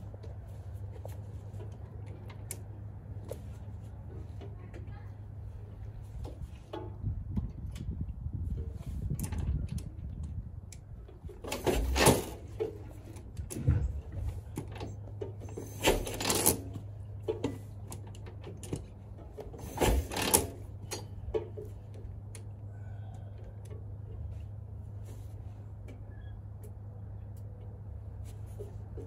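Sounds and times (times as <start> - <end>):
motorcycle kickstarter clatter: 11.1 - 22.5
engine turning over without firing: 11.4 - 12.8, 14.8 - 16.8, 19.4 - 21.1.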